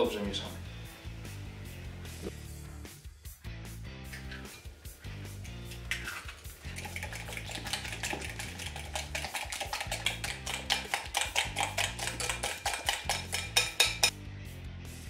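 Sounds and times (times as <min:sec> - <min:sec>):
fork clinking against glass bowl: 0:05.8 - 0:14.1.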